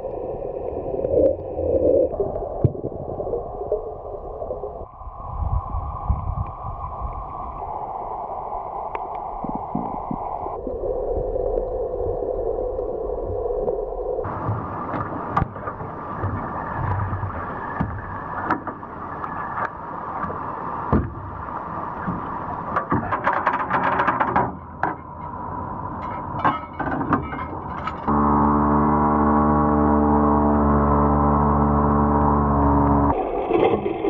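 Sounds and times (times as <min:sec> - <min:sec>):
low running hum: 0:25.3 - 0:33.2
outboard motor drone: 0:28.1 - 0:33.2.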